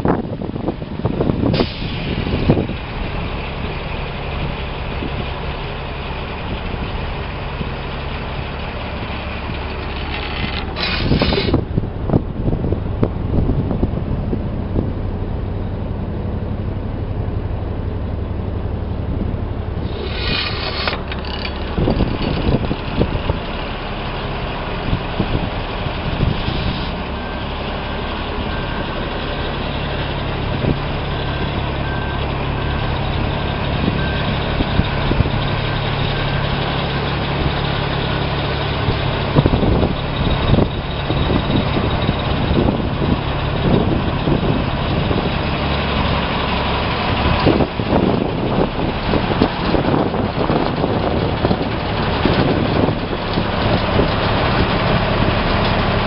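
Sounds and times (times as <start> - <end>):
diesel engine idling: 0.0 - 56.0
brief air hisses: 1.5 - 2.3, 10.8 - 11.6, 19.8 - 21.0.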